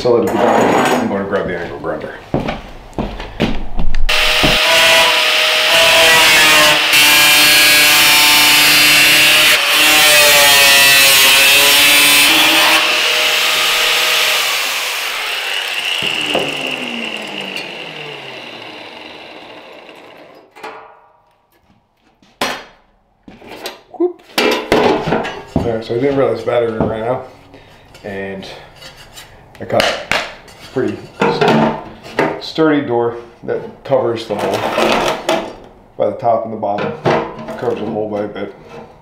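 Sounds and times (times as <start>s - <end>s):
angle grinder cutting steel: 4.1s - 20.5s
grinder wheel spinning down: 12.3s - 20.5s.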